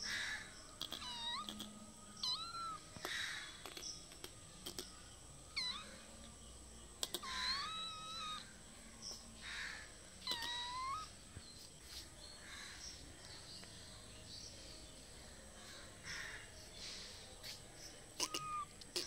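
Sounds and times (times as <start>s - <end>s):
kitten mewing: 0.8s - 5.0s, 5.6s - 6.0s, 7.0s - 8.5s, 10.2s - 11.1s, 18.2s - 19.0s.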